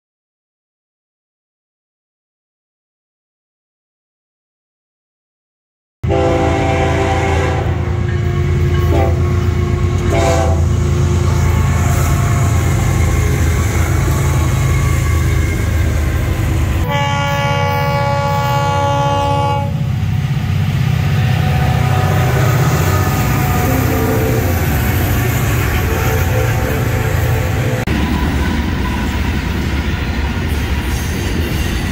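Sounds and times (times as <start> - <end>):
locomotive air horn blasts: 6.0 - 16.1, 16.8 - 19.9, 21.3 - 27.9
diesel locomotive engine rumble: 6.0 - 31.9.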